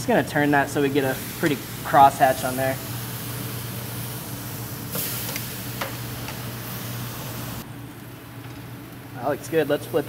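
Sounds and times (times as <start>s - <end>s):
steady low hum: 0.0s - 10.0s
steak sizzling on grill: 0.3s - 7.6s.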